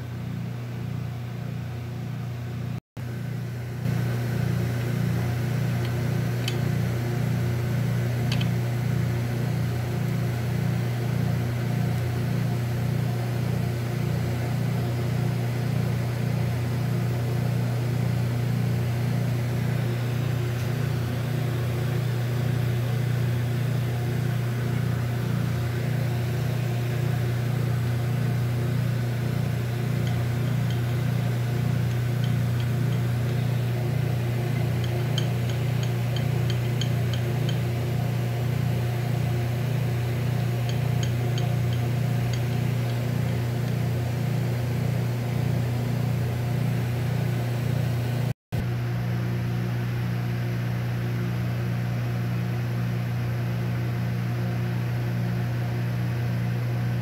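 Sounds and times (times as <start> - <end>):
electric motor humming: 18.6 - 45.6.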